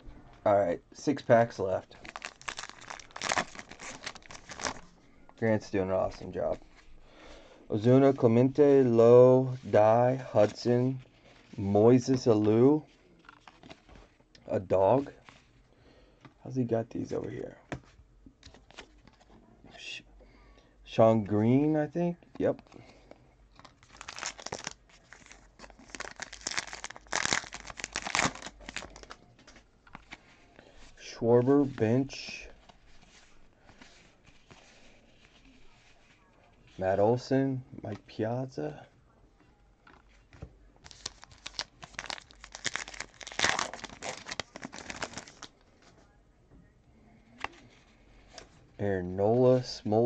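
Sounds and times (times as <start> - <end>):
wrapper tearing and crinkling: 1.9 - 4.9, 23.7 - 29.2, 40.9 - 45.6.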